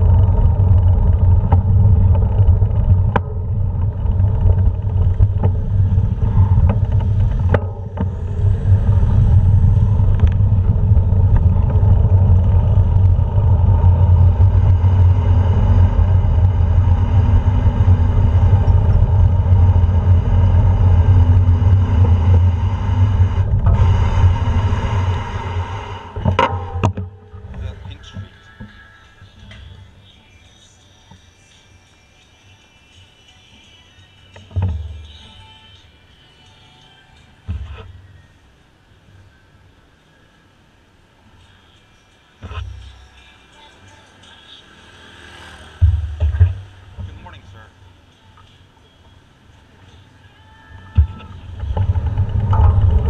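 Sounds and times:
bicycle rolling over cobblestones: 0.0 - 28.8, 50.7 - 53.0
knocks from bumps: 45.8 - 47.2.

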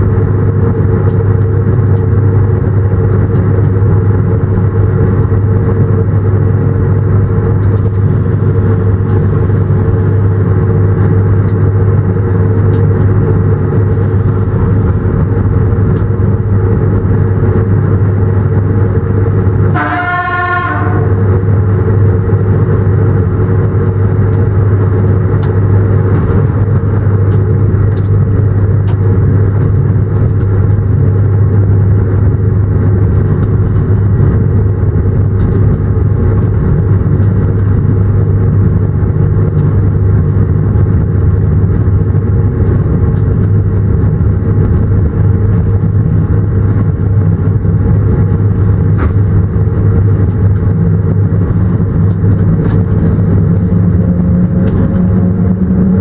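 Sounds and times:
train running drone: 0.0 - 56.0
train horn blast: 19.7 - 21.4.

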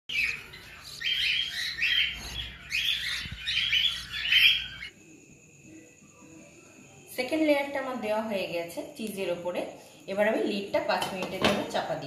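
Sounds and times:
bird chicks chirping: 0.1 - 4.9.

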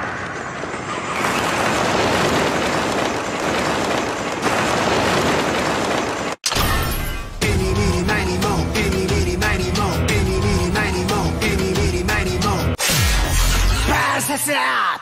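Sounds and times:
flapping bats rushing: 0.0 - 6.4.

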